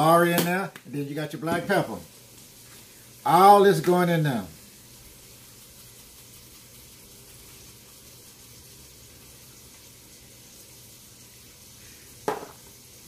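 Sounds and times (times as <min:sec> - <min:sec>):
onions sizzling in a pan: 0:00.0 - 0:13.0.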